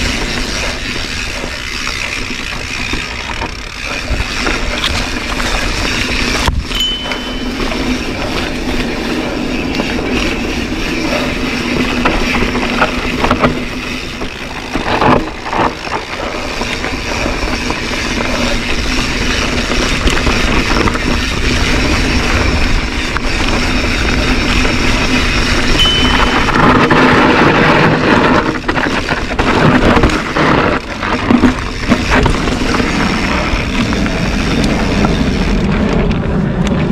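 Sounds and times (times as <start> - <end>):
bike rattling over ground: 0.0 - 36.9
wind and tyre noise: 0.0 - 36.9.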